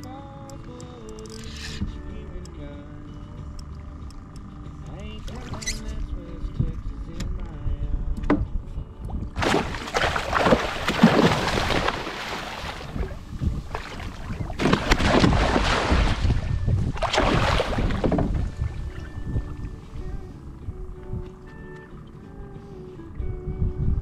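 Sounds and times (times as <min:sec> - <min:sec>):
water splashing: 0:09.2 - 0:20.3
fish thrashing at surface: 0:09.4 - 0:19.6.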